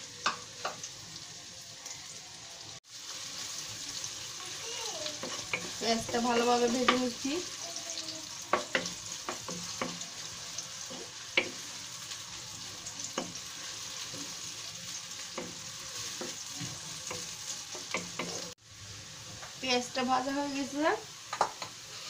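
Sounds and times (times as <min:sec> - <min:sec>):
onions sizzling in hot oil: 0:00.0 - 0:22.0
wooden spatula scraping a pan: 0:05.1 - 0:07.3.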